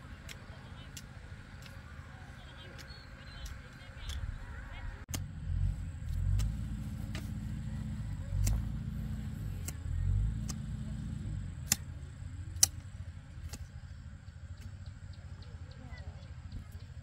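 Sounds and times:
low rumble: 0.0 - 15.6
hand hoe chopping dry soil: 6.1 - 7.6, 8.3 - 8.8, 11.6 - 11.9, 12.6 - 12.8.

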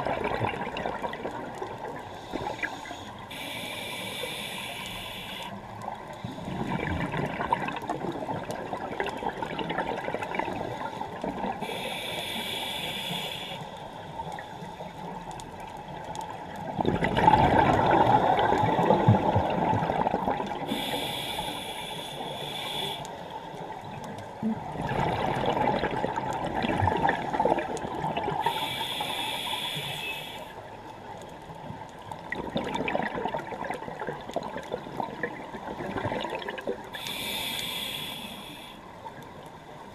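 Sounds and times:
hissing regulator inhales: 2.1 - 5.6, 11.6 - 13.9, 20.7 - 23.3, 28.4 - 30.6, 37.0 - 38.8
bubbling exhaled air: 16.7 - 21.7, 24.7 - 29.8.

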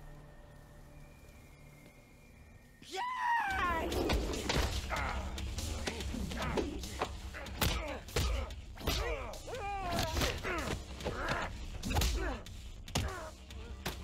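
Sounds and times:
men grunting: 3.6 - 13.8.

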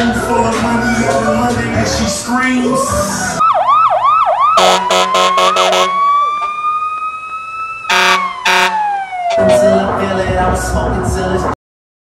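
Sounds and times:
siren rising and winding down: 2.8 - 10.2
air horn blasts: 4.6 - 6.0, 7.9 - 9.6.

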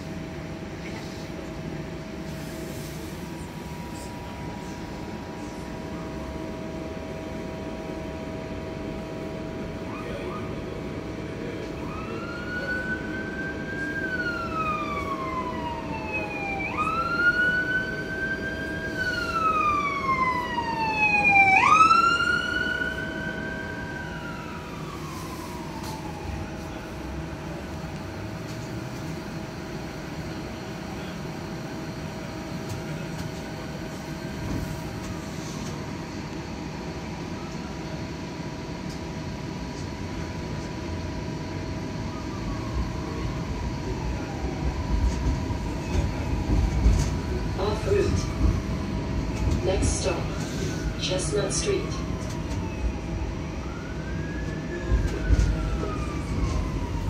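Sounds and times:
streetcar rumble and hum: 0.0 - 57.0
emergency siren wailing: 3.4 - 30.0, 31.0 - 57.0.

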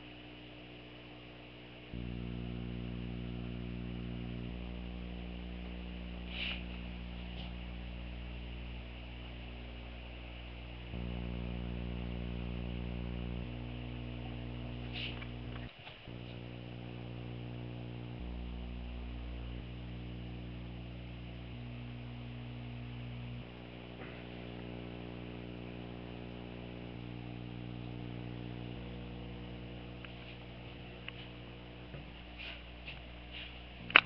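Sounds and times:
electrical hum: 0.0 - 34.0
faint clicks: 14.7 - 16.5.

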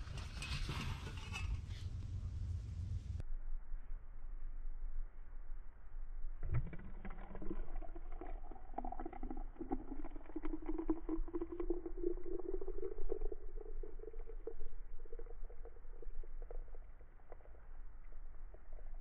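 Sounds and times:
water pouring into plastic chamber: 6.4 - 17.6.

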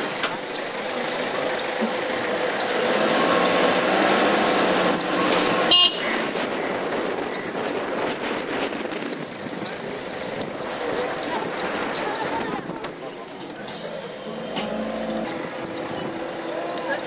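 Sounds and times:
vehicle road and engine noise: 0.0 - 17.0
vehicle horn toot: 5.6 - 6.2.

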